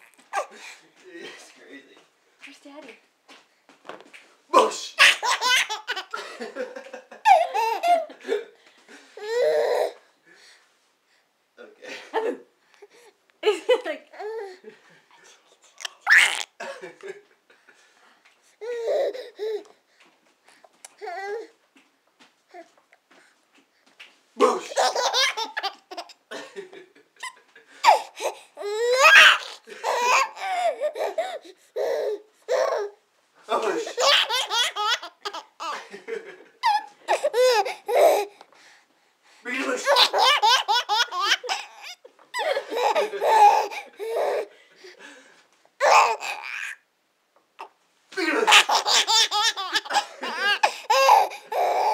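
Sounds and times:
baby laughing: 0:04.6 - 0:06.3, 0:07.2 - 0:08.2, 0:15.8 - 0:16.6, 0:24.4 - 0:26.2, 0:27.2 - 0:33.0, 0:33.6 - 0:35.9, 0:36.6 - 0:38.3, 0:39.7 - 0:44.5, 0:45.8 - 0:46.8, 0:47.6 - 0:51.9.

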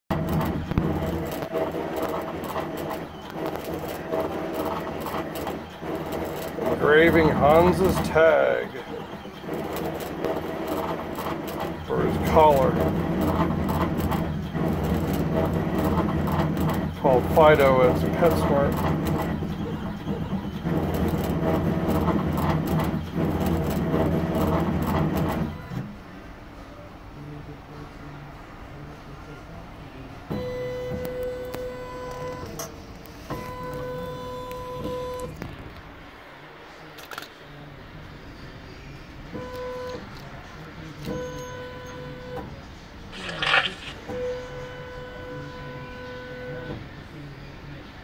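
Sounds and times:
engraving machine motors whirring: 0:00.1 - 0:25.9, 0:43.1 - 0:46.8.

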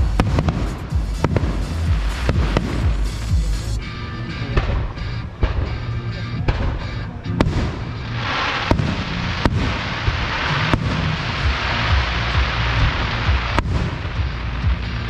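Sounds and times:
firework bangs: 0:00.0 - 0:03.8, 0:04.6 - 0:15.0
firework crackle: 0:00.0 - 0:03.8, 0:07.4 - 0:15.0
music playing: 0:00.0 - 0:15.0.

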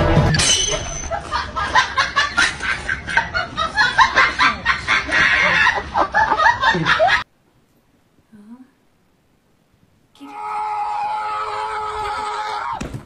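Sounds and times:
people laughing: 0:01.0 - 0:07.3.

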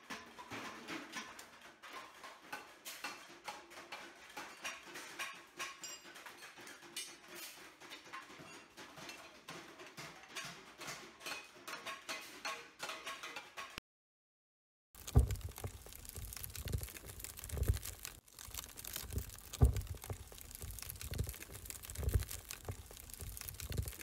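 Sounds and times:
hand tools tapping sheet metal: 0:00.0 - 0:13.8.

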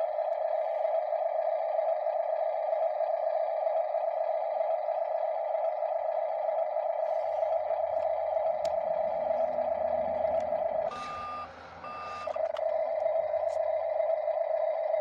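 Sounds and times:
toy buzzing engine hum: 0:00.0 - 0:15.0
reversing beeps: 0:08.9 - 0:15.0.

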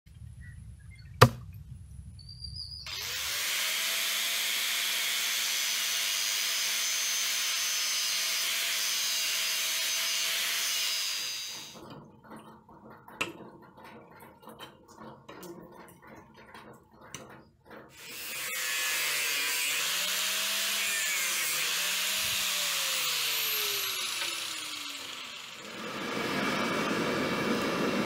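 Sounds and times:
angle grinder cutting steel: 0:02.9 - 0:11.8, 0:18.0 - 0:28.0.

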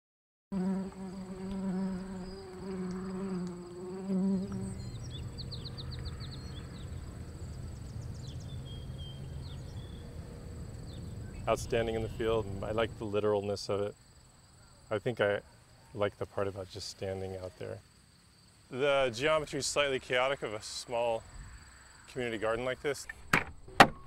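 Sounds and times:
flying insect buzzing: 0:00.5 - 0:06.9
high insect drone: 0:00.6 - 0:24.0
insects chirping in trills: 0:00.6 - 0:24.0.

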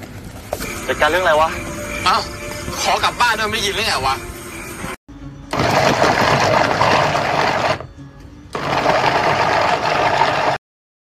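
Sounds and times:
electric food chopper whirring: 0:05.5 - 0:07.9, 0:08.5 - 0:10.6.

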